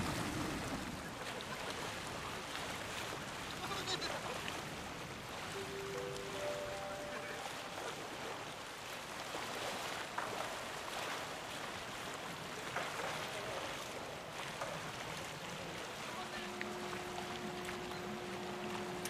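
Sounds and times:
water noise: 0.0s - 19.0s
wind: 0.0s - 19.0s.

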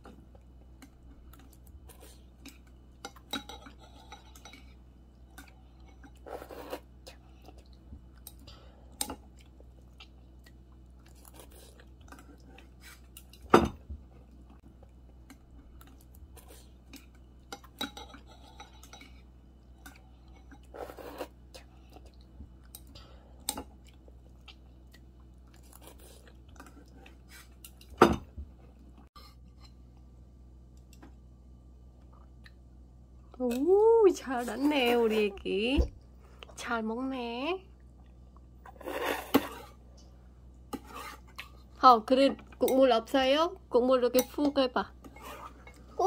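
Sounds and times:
slurping noodles: 6.2s - 6.9s, 20.7s - 21.4s, 38.7s - 39.8s.

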